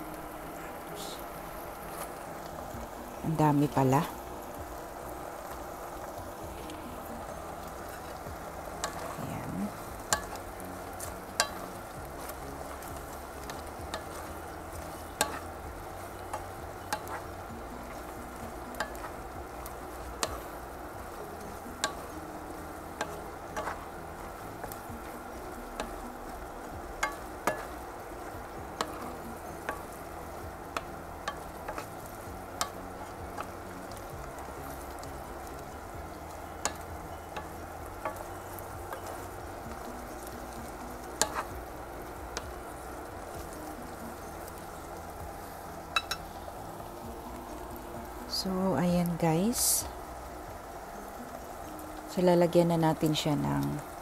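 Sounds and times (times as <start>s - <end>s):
food sizzling in a pan: 0.0s - 54.0s
spatula tapping against pan: 46.0s - 46.2s.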